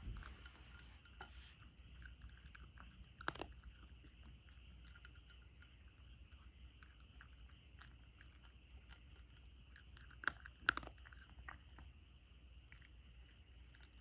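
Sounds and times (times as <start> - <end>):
cat crunching dry kibble: 1.7 - 11.8.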